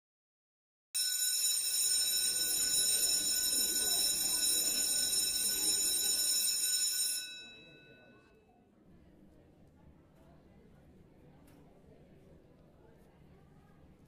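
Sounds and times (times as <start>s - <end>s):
electric bell ringing: 1.0s - 8.2s.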